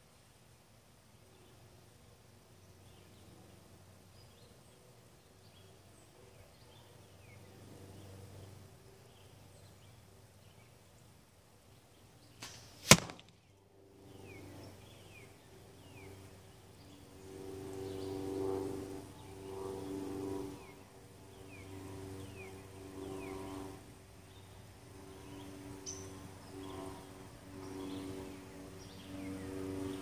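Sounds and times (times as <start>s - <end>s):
arrow hitting target: 12.4s - 13.5s.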